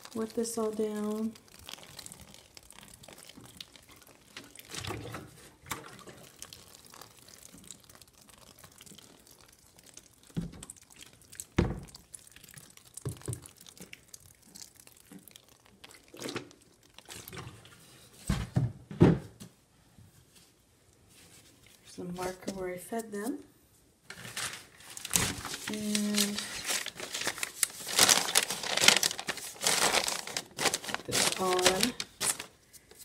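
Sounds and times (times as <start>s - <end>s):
water splashing onto cardboard: 0.0s - 17.6s, 25.0s - 32.6s
wet rustling of bedding: 24.1s - 32.7s.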